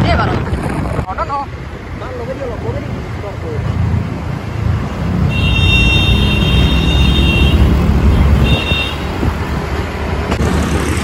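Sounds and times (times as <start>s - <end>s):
motorcycle road and wind rumble: 0.0s - 11.0s
high-pitched vehicle horn: 5.3s - 9.2s.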